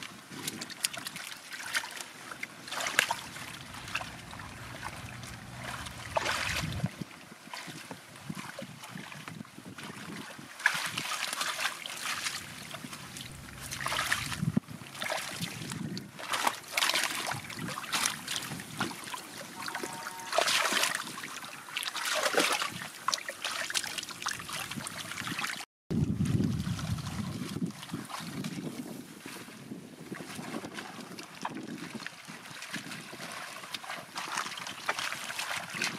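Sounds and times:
water splashing: 0.9s - 7.8s, 10.6s - 25.6s.

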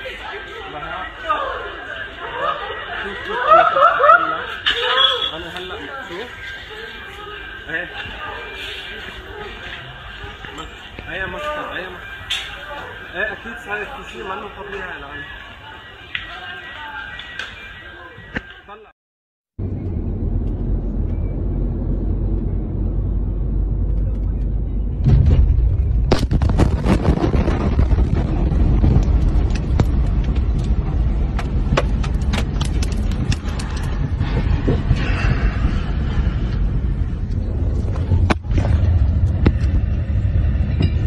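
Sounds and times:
car road noise: 19.6s - 26.2s, 27.9s - 41.0s
explosion boom: 24.8s - 41.0s
rumbling din with cracks: 25.0s - 41.0s.

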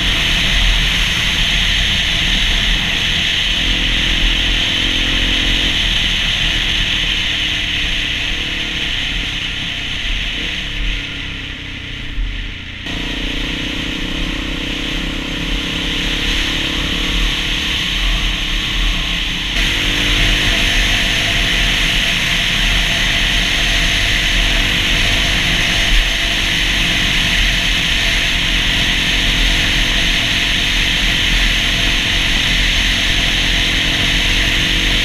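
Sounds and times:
dirt bike engine running: 0.0s - 35.0s
wind rush and road noise: 0.0s - 35.0s.

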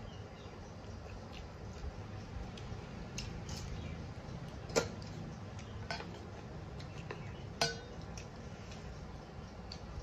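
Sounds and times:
metal spoon clinking on bowl: 7.6s - 8.0s.

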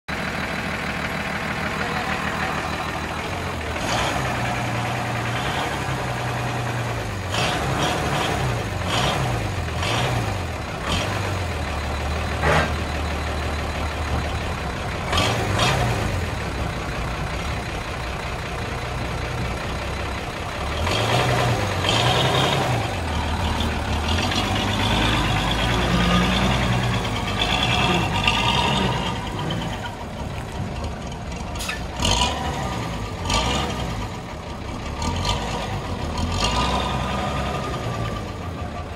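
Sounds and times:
diesel truck engine revving: 0.1s - 38.9s.

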